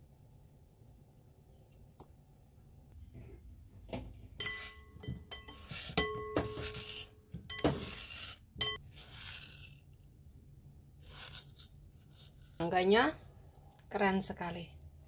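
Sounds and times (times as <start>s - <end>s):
glass bowl clinking and ringing: 4.4s - 6.7s, 8.6s - 8.8s.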